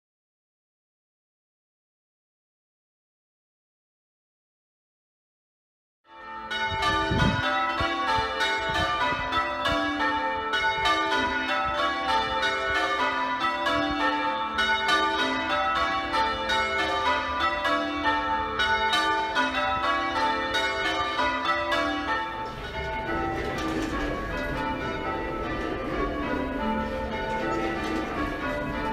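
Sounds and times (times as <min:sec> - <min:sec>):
church bells change ringing: 0:06.1 - 0:28.9.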